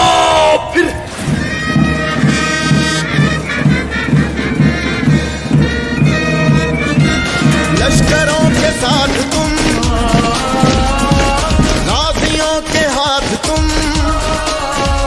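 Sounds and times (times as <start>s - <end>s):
military march music: 1.0s - 15.0s
steady drumbeat: 1.0s - 15.0s
singing: 6.0s - 15.0s.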